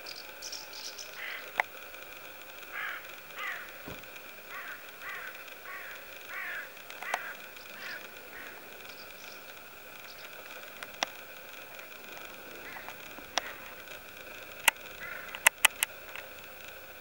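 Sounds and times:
crows cawing: 0:01.0 - 0:01.6, 0:02.6 - 0:10.7, 0:11.7 - 0:15.6
sharp clicks: 0:03.7 - 0:16.3.

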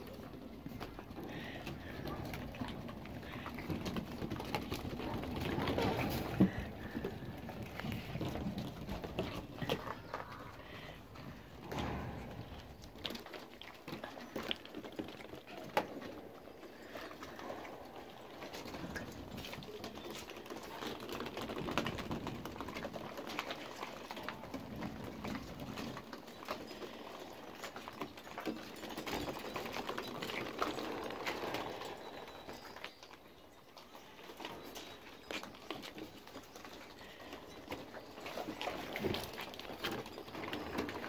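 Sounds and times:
puppy paws pattering on wood: 0:00.0 - 0:41.0
plastic balls clicking: 0:12.4 - 0:33.4.

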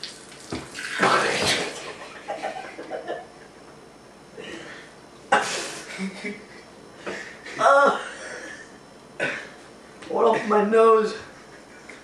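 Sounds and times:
water splashing on face: 0:00.0 - 0:01.8
person spluttering: 0:00.7 - 0:02.0
person chuckling: 0:01.6 - 0:03.4, 0:05.5 - 0:08.7.

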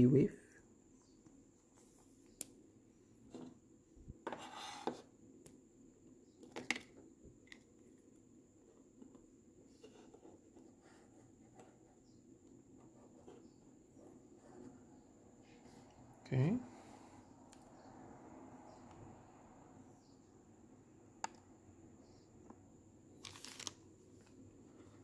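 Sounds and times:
plastic card sleeve rustling: 0:23.2 - 0:24.4.

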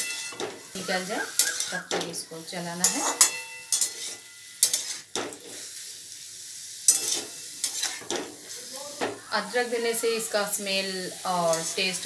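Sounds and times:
metal spatula scraping a pan: 0:00.0 - 0:05.9, 0:06.7 - 0:10.6, 0:11.2 - 0:12.0
tomatoes sizzling: 0:00.0 - 0:12.0.

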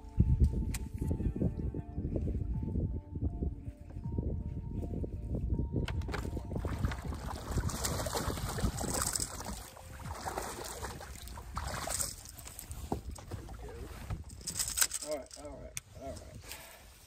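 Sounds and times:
wind on microphone: 0:00.0 - 0:14.8
water against boat hull: 0:06.0 - 0:14.8
handling clicks and knocks: 0:14.1 - 0:15.4.

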